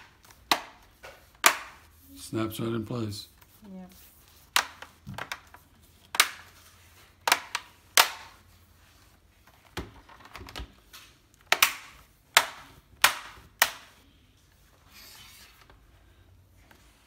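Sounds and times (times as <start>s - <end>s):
plastic clips snapping: 10.5s - 13.9s.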